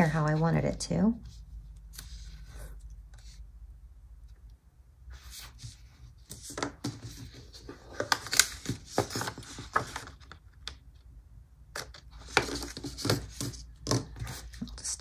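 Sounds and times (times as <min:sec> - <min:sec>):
tape and paper clicking and rustling: 0:05.6 - 0:10.9, 0:11.7 - 0:14.8.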